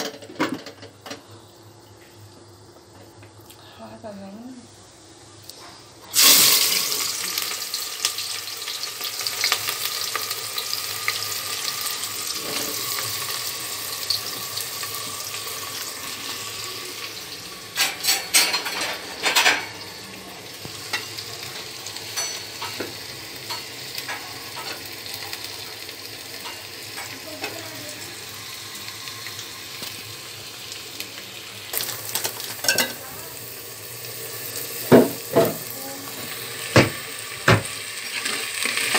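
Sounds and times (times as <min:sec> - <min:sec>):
onions sizzling in hot oil: 0:00.2 - 0:38.9
metal spoon clinking on pot: 0:32.6 - 0:33.0.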